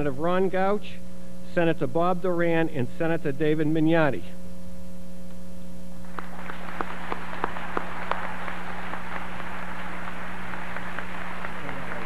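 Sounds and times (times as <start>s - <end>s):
low electrical hum: 0.0s - 12.0s
audience applauding: 6.0s - 12.0s
sharp claps: 6.0s - 12.0s.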